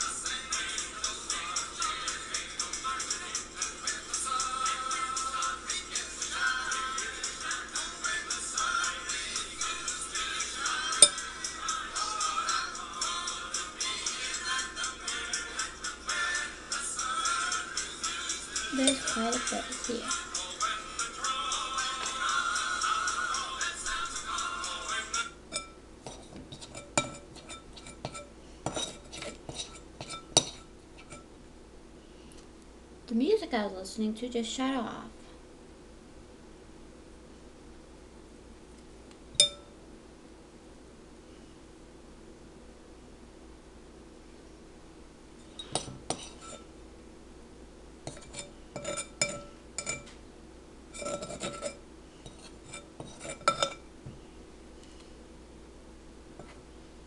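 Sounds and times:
glass bowl and metal tray clinking: 0:11.0 - 0:11.2, 0:25.6 - 0:31.2, 0:39.4 - 0:39.7, 0:45.5 - 0:46.6, 0:48.1 - 0:50.1, 0:51.0 - 0:53.8.

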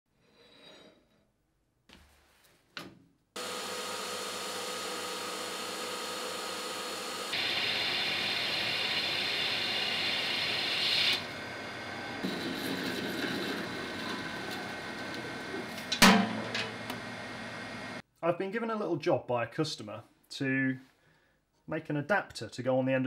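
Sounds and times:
tool cutting steel with high hiss: 0:03.4 - 0:16.8
metal lathe running with whine: 0:03.4 - 0:18.0.

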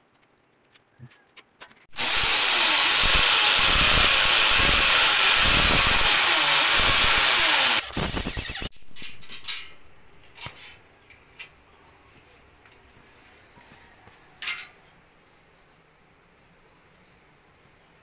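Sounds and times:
electric drill boring into wall: 0:01.9 - 0:08.7.

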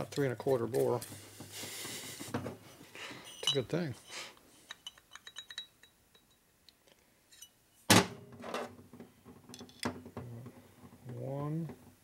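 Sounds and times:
light metallic clicks and clinks: 0:03.2 - 0:04.0, 0:04.6 - 0:06.4.

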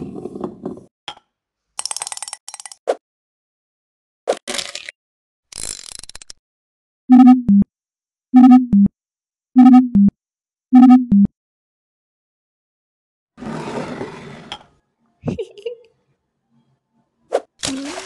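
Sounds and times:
electronic two-note beeps: 0:07.1 - 0:07.6, 0:08.4 - 0:08.9, 0:09.6 - 0:10.1, 0:10.8 - 0:11.3.

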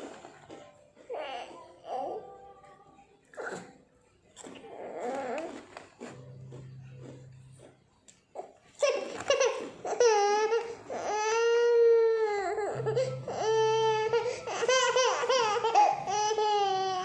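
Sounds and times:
baby crying: 0:08.8 - 0:17.0.

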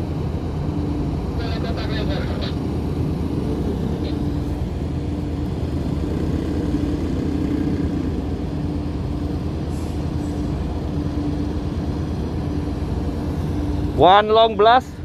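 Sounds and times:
ship engine rumbling: 0:00.0 - 0:15.0.

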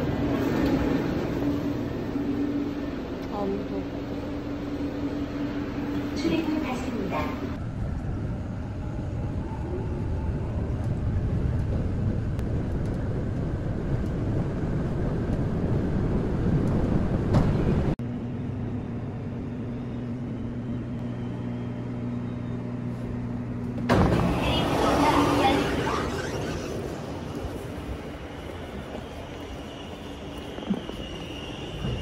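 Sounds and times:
vehicle rumble: 0:07.0 - 0:32.0.

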